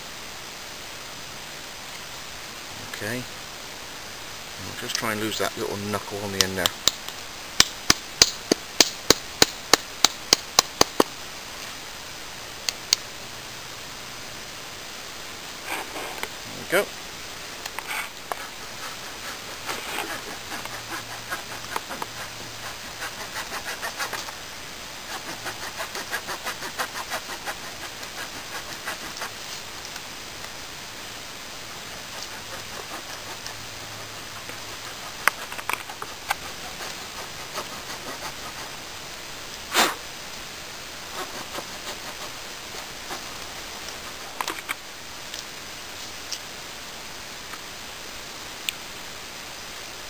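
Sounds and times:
knife scraping wood: 17.7s - 24.4s, 25.1s - 29.5s, 32.0s - 33.6s, 34.4s - 38.8s, 41.1s - 44.8s.

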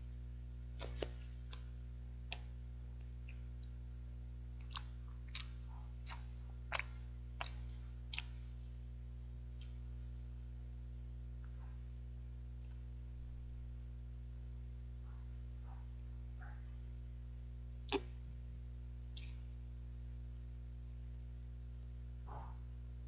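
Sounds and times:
low electrical hum: 0.0s - 23.0s
wet mouth clicks chewing: 4.6s - 8.4s, 17.9s - 18.1s.

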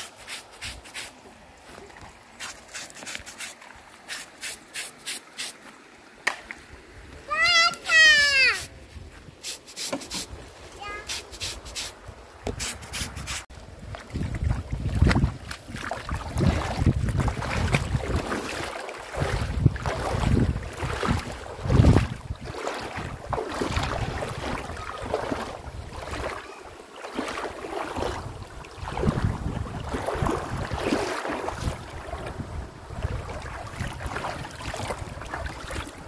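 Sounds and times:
wind buffeting microphone: 13.6s - 26.4s, 27.9s - 36.0s.

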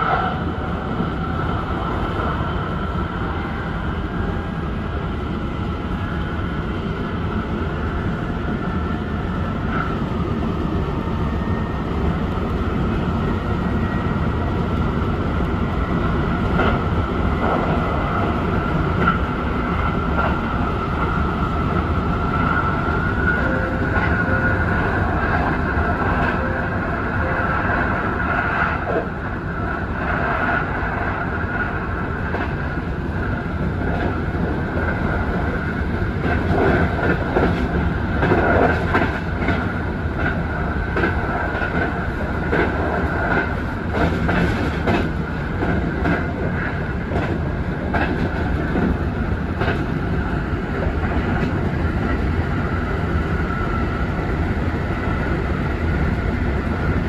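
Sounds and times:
train wheels rumbling on rail: 0.0s - 57.0s
clacks over rail joints: 36.2s - 49.9s.

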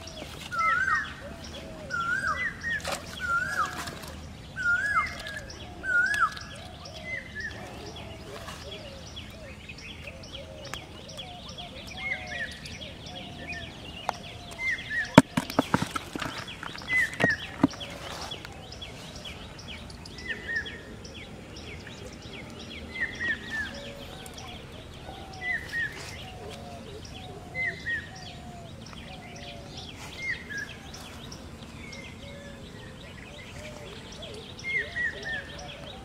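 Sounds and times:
birds calling: 0.0s - 36.0s
sharp clicks and knocks: 15.1s - 17.9s.

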